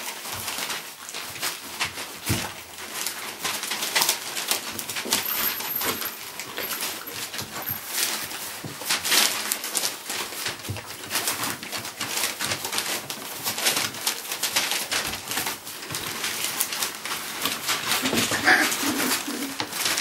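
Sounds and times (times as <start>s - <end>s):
newspaper rustling under paws: 0.0s - 20.0s
puppy grunts and squeaks: 17.9s - 19.8s.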